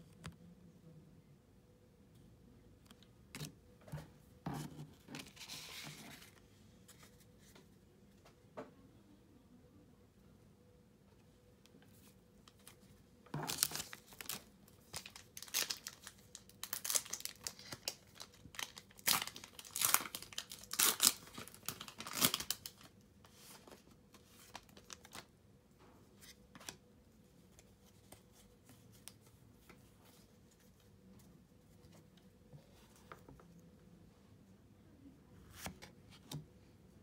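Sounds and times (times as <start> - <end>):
foil wrapper tearing and crinkling: 13.4 - 22.9.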